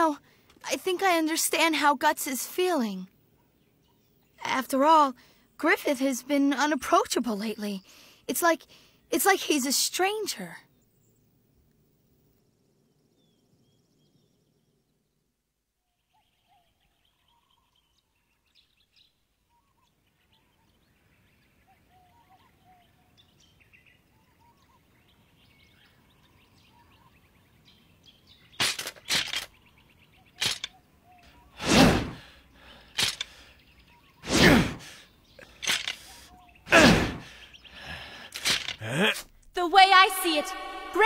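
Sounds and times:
faint birds chirping: 0.0 - 41.0
sword whooshing through air: 31.6 - 32.3, 34.2 - 34.9.

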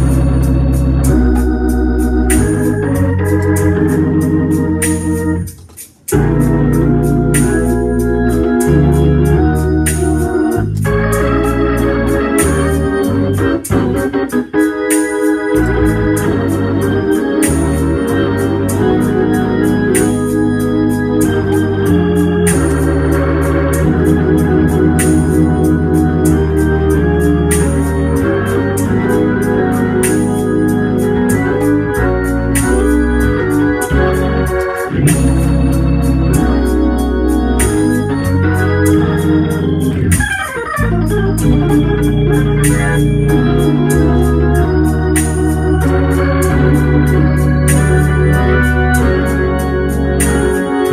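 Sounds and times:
organ chords: 0.0 - 50.9.

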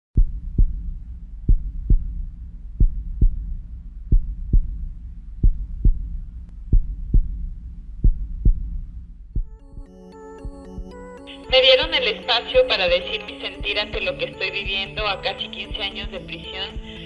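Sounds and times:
low steady hum: 0.2 - 9.6
heartbeat double thump: 0.2 - 12.0.

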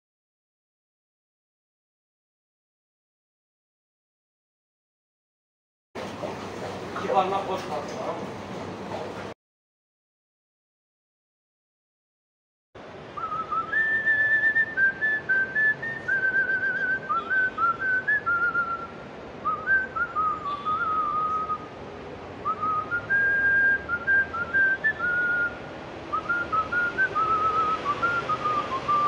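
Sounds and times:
man whistling a tune: 13.2 - 21.7, 22.4 - 29.0.

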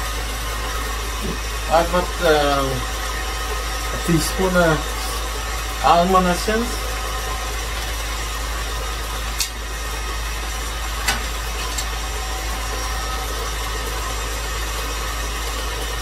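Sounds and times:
stand mixer whisking batter: 0.0 - 16.0.

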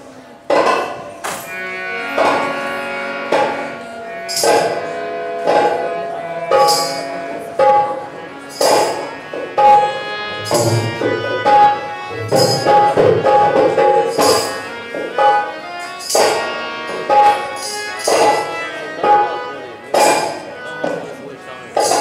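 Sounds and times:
held melodic notes: 1.0 - 22.0
sharp accented drum stroke: 2.2 - 15.4
drumming: 3.3 - 15.3.

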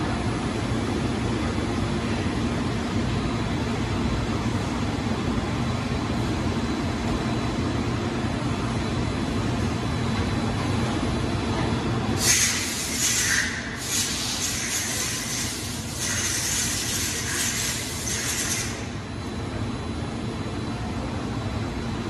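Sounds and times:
loud hiss: 12.2 - 18.8.

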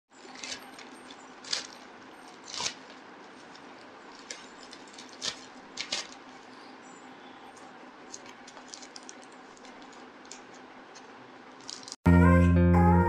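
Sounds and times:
plastic bag crinkling and tearing: 0.2 - 6.6, 7.6 - 11.0, 11.6 - 12.0.

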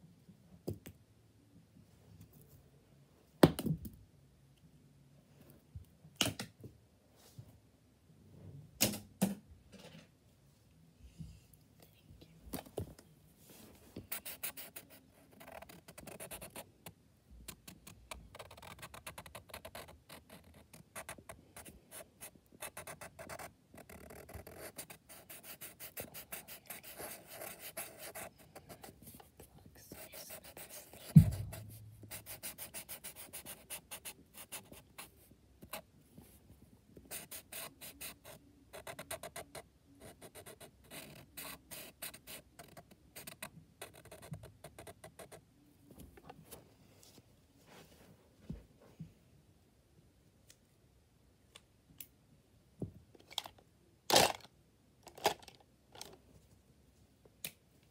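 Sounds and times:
marker scribbling on paper: 14.0 - 16.6, 17.5 - 35.8, 37.1 - 45.4
low thump: 31.2 - 31.5.

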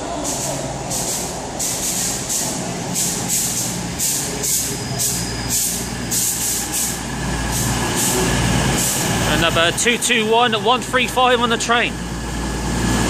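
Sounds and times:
train braking to a stop: 0.0 - 10.1
pulsing hiss: 0.2 - 9.4.

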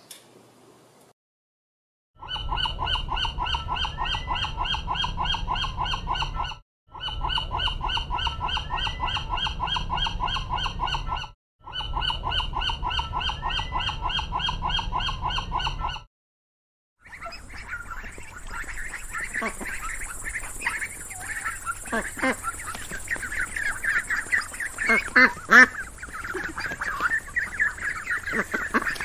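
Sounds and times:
gulls calling: 17.0 - 29.0
steady low rumble: 17.2 - 29.0.

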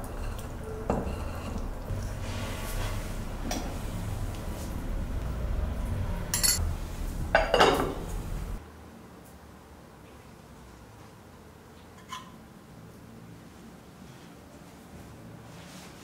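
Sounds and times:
low steady hum: 0.0 - 8.6.

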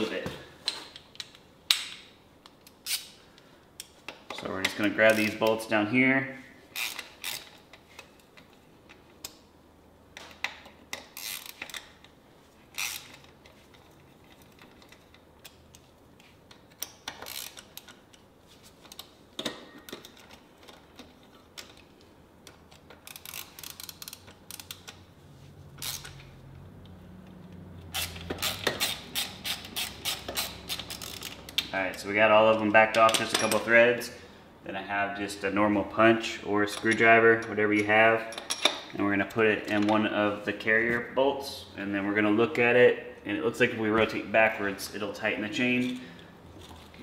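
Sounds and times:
wrench metallic clicks and clinks: 3.8 - 5.5, 6.8 - 8.1, 10.2 - 12.1, 12.8 - 13.4, 16.7 - 18.0, 22.5 - 25.0, 25.8 - 26.3, 27.9 - 31.7, 32.9 - 33.7, 36.7 - 38.9.

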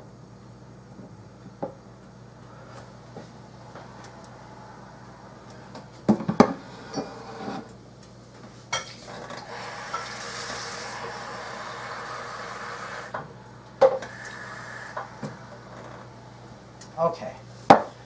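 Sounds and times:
steady hiss: 9.2 - 17.6.

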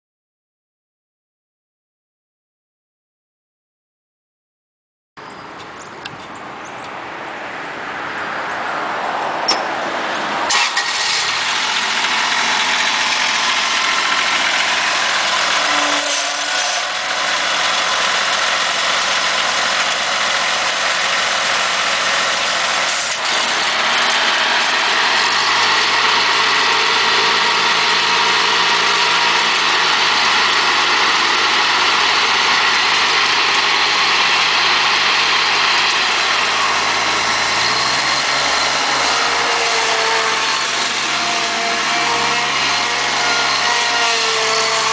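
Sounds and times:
sharp click: 9.4 - 9.7
riding mower running: 9.4 - 44.9.

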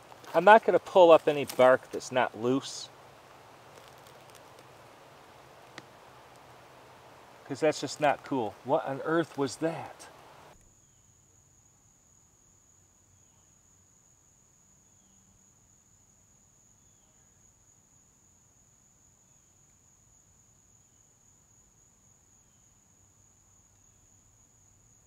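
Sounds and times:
high-pitched insect trill: 10.7 - 25.0.

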